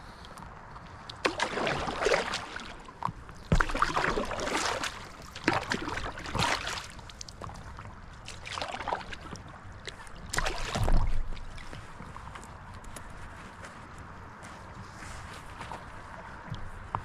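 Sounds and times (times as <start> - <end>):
paddle strokes splashing water: 0.8 - 12.5.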